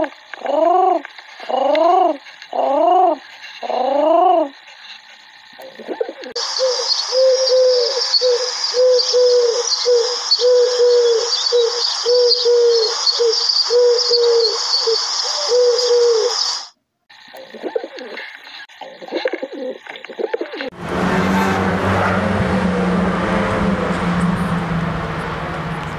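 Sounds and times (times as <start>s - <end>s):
faint chirps: 0.0s - 19.8s
dove cooing: 0.4s - 4.5s, 5.6s - 14.5s, 15.3s - 16.4s, 17.4s - 18.2s, 18.8s - 20.6s
steady high hiss: 6.3s - 17.4s.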